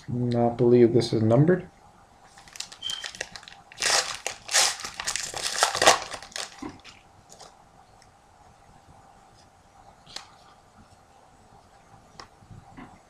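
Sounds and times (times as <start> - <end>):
wrapper tearing and crinkling: 2.3 - 7.5.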